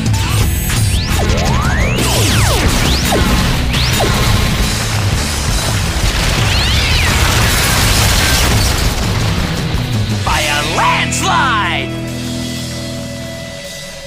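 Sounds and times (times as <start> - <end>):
background music: 0.0 - 14.0
laser beam zaps: 0.5 - 9.3
long explosion: 0.9 - 10.6.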